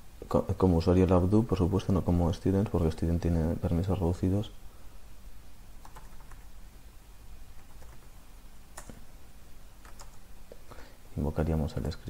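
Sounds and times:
faint low hum: 0.0 - 12.0
keyboard keystrokes: 8.8 - 9.0, 9.8 - 10.2.

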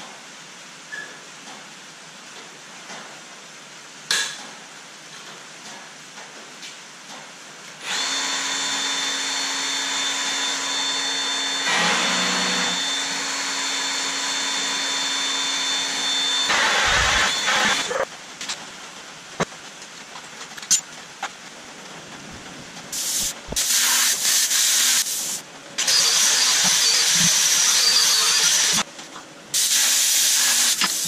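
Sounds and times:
rain on a metal roof: 0.0 - 7.8, 18.0 - 23.0
magnetic drill whining into steel: 7.9 - 18.0.

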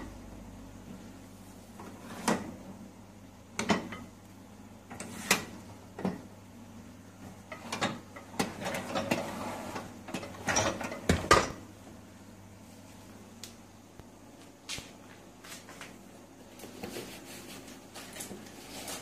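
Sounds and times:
dishwasher wire racks rattling: 7.5 - 11.6.

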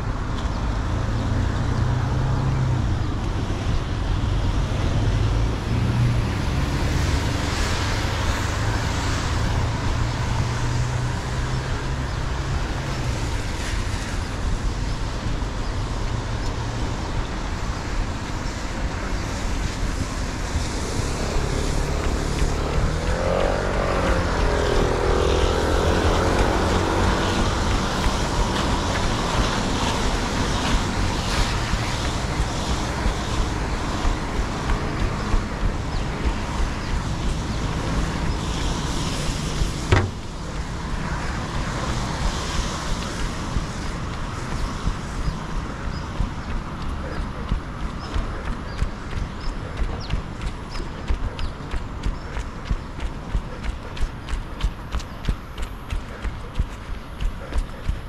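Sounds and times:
road traffic passing: 0.0 - 58.0
vehicle engine passing: 20.0 - 52.8.

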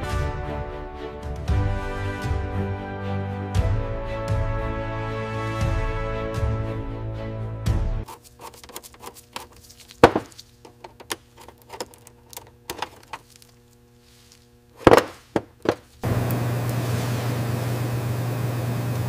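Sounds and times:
background music: 0.0 - 8.1
louder knocks: 10.0 - 10.3.

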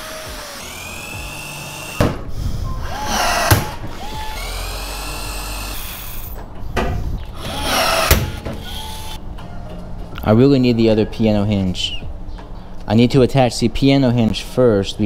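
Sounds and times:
electric drill boring into metal: 0.0 - 2.1, 2.8 - 6.4, 7.4 - 9.2.

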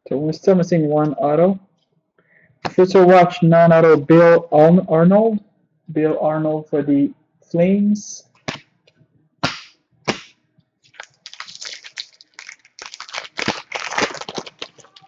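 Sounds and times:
foil card pack tearing open: 10.9 - 15.0.

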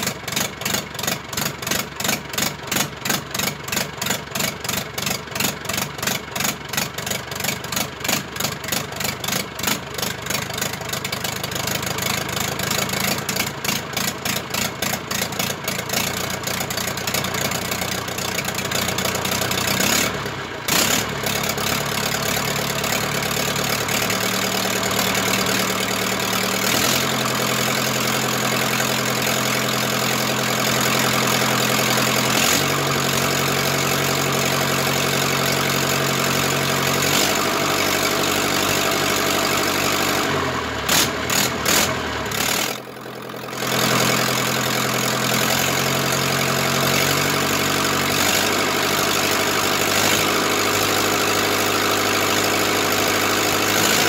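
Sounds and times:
diesel tractor engine idling: 0.0 - 54.0.

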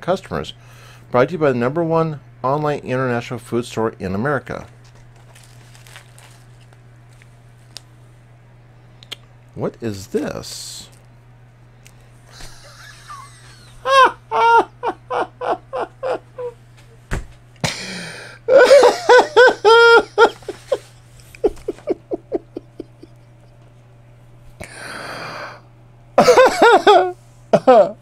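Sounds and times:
man laughing hard: 12.3 - 16.6, 17.6 - 23.4, 26.2 - 28.0
gasping breath: 17.7 - 18.4, 24.6 - 25.6.

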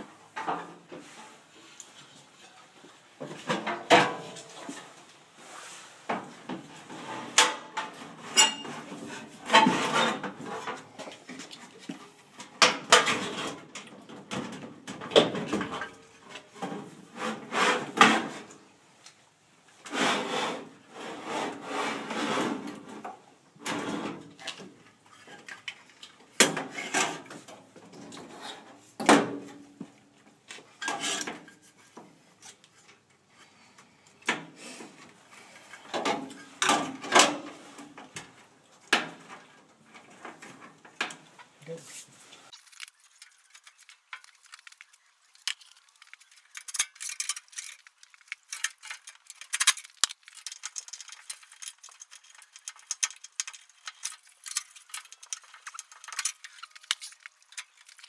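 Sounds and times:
scraping and rubbing: 16.6 - 18.5, 19.9 - 23.0, 41.7 - 58.0.

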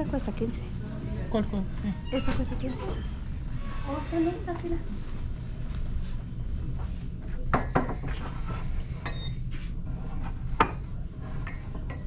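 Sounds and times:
dishware clinking: 9.0 - 9.4.

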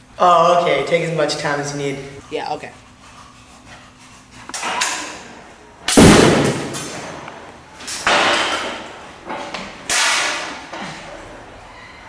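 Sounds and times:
loud bangs: 5.9 - 7.3.

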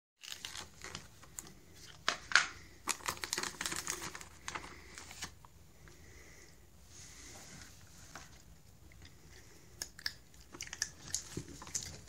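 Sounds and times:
crinkly pouch rustling: 0.2 - 5.4.

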